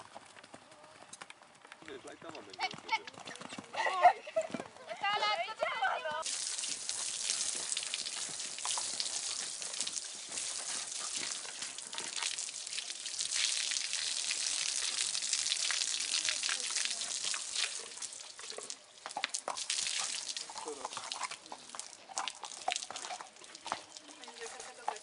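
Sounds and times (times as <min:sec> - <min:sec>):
water splattering on concrete: 0:06.2 - 0:25.0
water spraying from a hose: 0:06.2 - 0:25.0.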